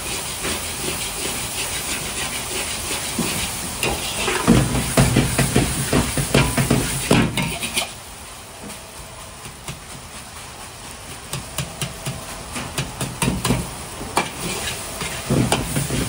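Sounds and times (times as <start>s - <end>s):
rice sizzling in a wok: 0.0s - 16.0s
wok clatter: 0.0s - 16.0s
metal ladle scraping wok: 3.8s - 4.6s, 7.4s - 8.0s, 14.2s - 16.0s.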